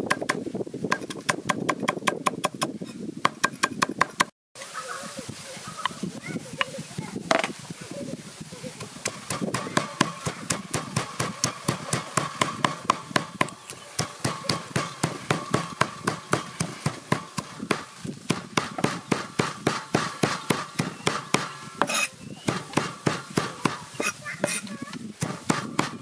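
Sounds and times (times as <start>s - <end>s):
cleaver chopping on wooden block: 9.0s - 24.6s, 25.2s - 26.0s.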